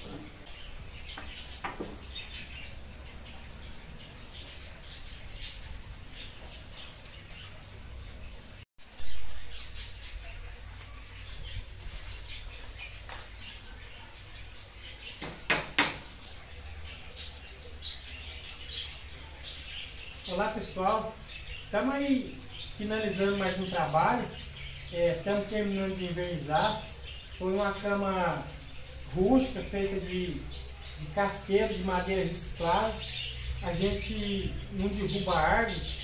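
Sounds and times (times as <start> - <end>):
bird chirps: 8.8 - 36.0
sharp knocks: 15.2 - 16.2.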